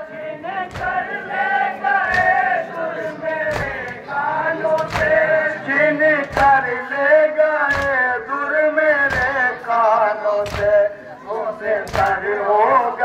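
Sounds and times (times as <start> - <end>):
men chanting a lament: 0.0 - 13.0.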